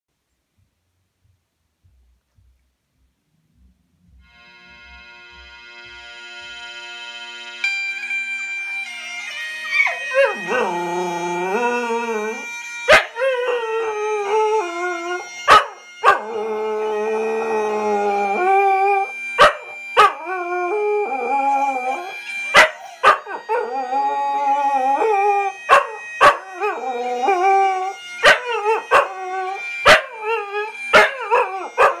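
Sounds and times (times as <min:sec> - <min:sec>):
music: 0:00.9 - 0:32.0
dog howling: 0:09.2 - 0:32.0.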